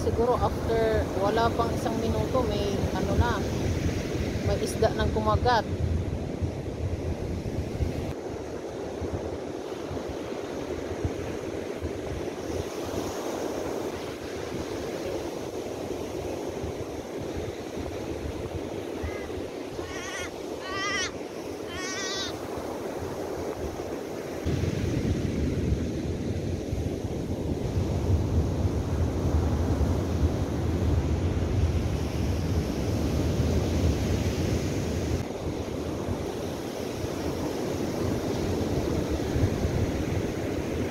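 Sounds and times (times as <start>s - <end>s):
wind buffeting microphone: 0.0s - 40.9s
surf breaking on beach: 8.0s - 40.9s
bird calls: 19.0s - 22.4s.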